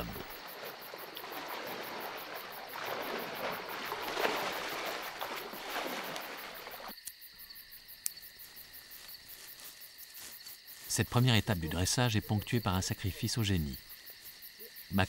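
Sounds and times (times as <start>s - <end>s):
water splashing and sloshing: 0.0s - 7.0s
insects chirring: 0.0s - 15.0s.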